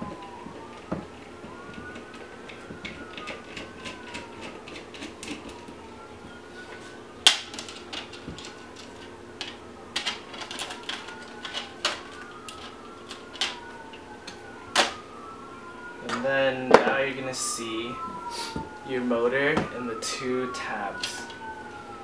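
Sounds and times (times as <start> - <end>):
distant siren wailing: 0.0 - 22.0.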